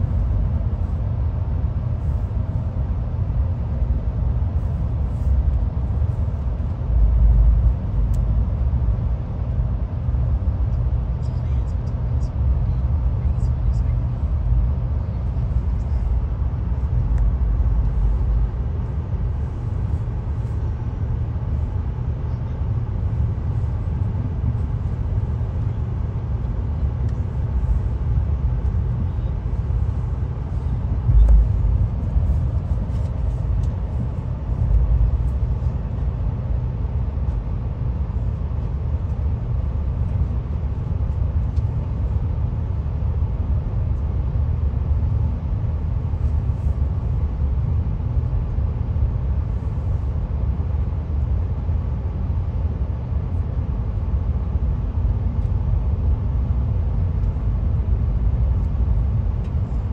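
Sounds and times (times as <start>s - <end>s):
train rumbling on track: 22.4s - 38.3s.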